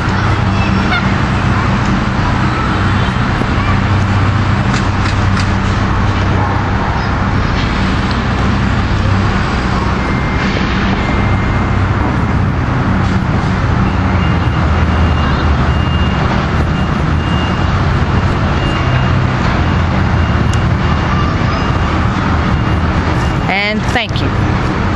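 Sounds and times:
low engine drone: 0:00.0 - 0:24.9
faint high beep: 0:09.7 - 0:12.1.

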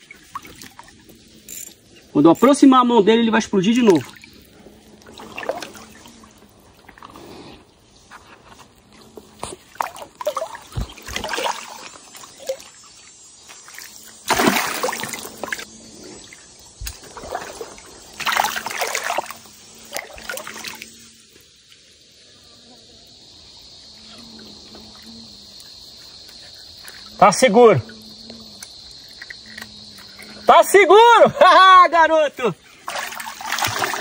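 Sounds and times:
water splashing and sloshing: 0:00.0 - 0:02.2, 0:03.5 - 0:07.4, 0:08.0 - 0:21.9, 0:32.4 - 0:34.0.

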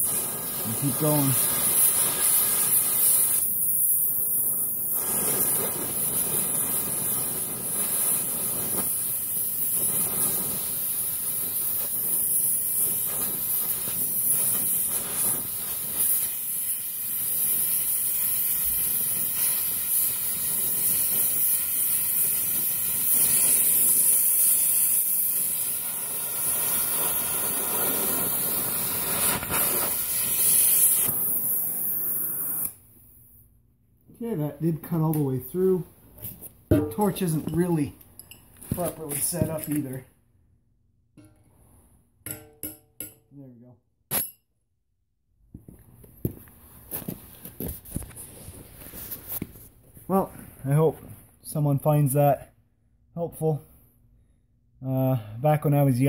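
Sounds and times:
cutting torch hissing: 0:00.0 - 0:32.8.

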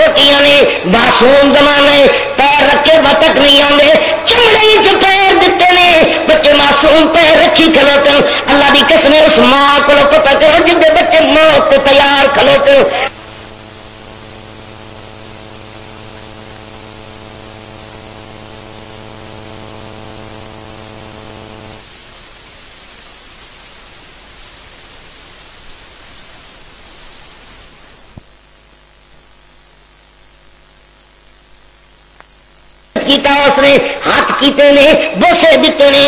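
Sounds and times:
electrical hum: 0:00.0 - 0:36.0
steady hiss: 0:00.0 - 0:36.0
faint click: 0:32.1 - 0:32.4.

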